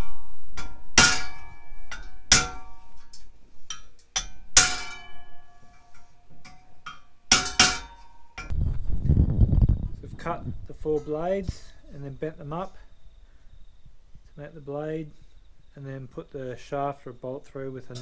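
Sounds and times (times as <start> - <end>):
hammer striking ringing metal dish: 0.6 - 8.5.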